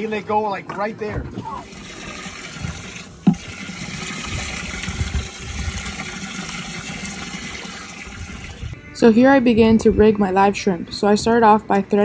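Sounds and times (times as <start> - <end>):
water sloshing: 0.6 - 8.8.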